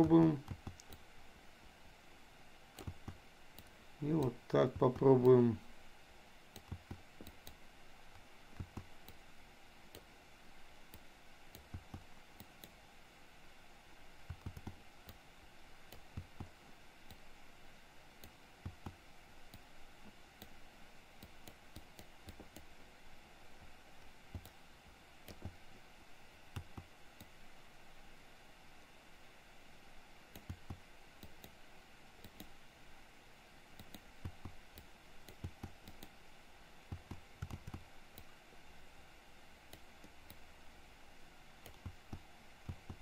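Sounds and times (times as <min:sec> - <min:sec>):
mouse and keyboard clicking: 0:00.0 - 0:01.0, 0:02.8 - 0:05.4, 0:06.6 - 0:07.6, 0:08.5 - 0:09.2, 0:10.9 - 0:12.8, 0:14.2 - 0:15.2, 0:25.2 - 0:25.6, 0:30.3 - 0:31.6, 0:33.8 - 0:36.2, 0:36.9 - 0:38.3, 0:41.6 - 0:43.0
low steady hiss: 0:00.0 - 0:43.0.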